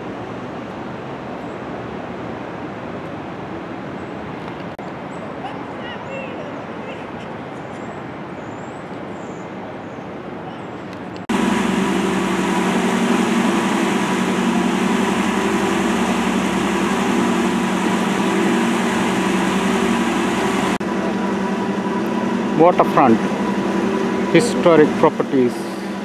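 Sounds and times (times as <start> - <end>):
steady engine hum: 11.2 - 26.0.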